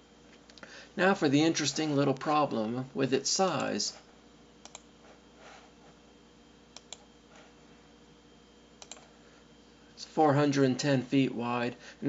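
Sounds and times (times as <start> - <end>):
faint room hum: 0.0 - 12.0.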